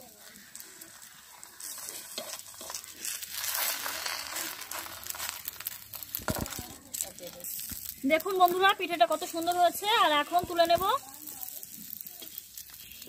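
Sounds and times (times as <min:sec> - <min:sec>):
light crinkly sizzling: 0:00.0 - 0:13.0
spoon scraping an iron pan: 0:01.6 - 0:04.2.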